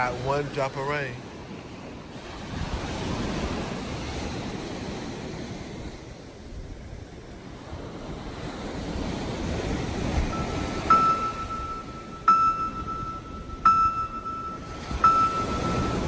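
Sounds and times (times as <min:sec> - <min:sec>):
ocean surf breaking: 0:00.0 - 0:16.0
steady tone: 0:10.2 - 0:16.0.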